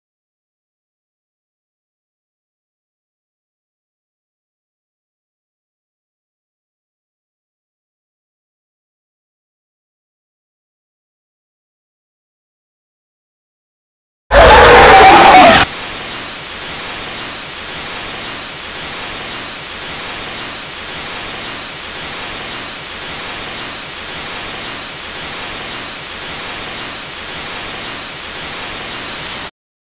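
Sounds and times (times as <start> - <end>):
television static hiss: 14.3 - 29.5.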